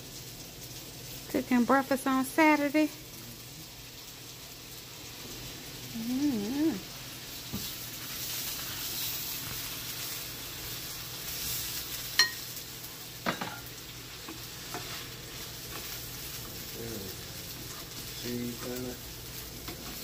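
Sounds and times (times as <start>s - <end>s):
sausages sizzling in a frying pan: 0.0s - 20.0s
metal fork clinking on pan: 12.2s - 12.5s.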